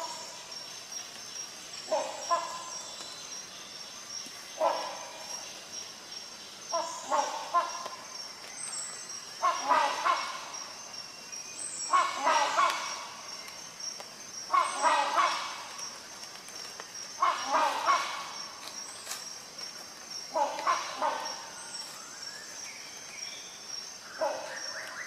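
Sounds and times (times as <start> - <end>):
hornbill honking calls: 9.4 - 10.7, 11.9 - 13.2, 14.5 - 15.8, 17.2 - 18.5, 20.3 - 21.6.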